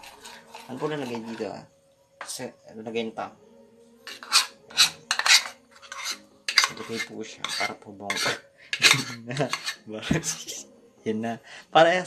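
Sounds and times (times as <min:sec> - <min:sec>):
spoon scraping ceramic bowl: 0:00.0 - 0:01.6, 0:04.0 - 0:10.6.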